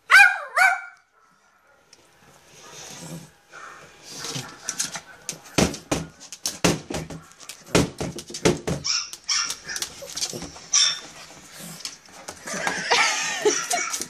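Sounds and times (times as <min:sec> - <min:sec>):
small dog barking: 0:00.1 - 0:01.9
teeth and paws knocking on laptop: 0:05.6 - 0:08.9.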